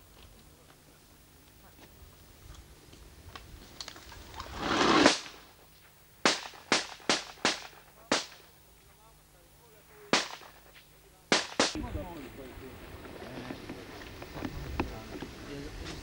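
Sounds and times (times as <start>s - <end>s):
gunshots: 4.5s - 5.5s, 6.2s - 8.5s, 10.1s - 11.8s.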